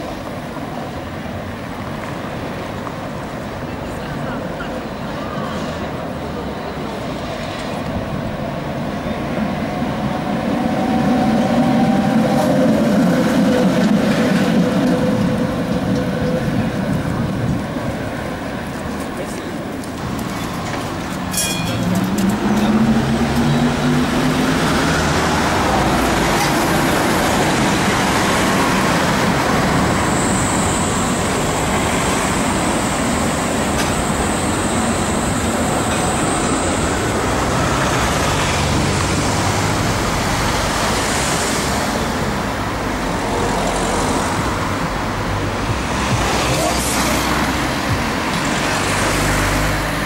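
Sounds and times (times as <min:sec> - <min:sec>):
road traffic: 0:00.0 - 0:50.0
tram motor whine: 0:20.2 - 0:41.1.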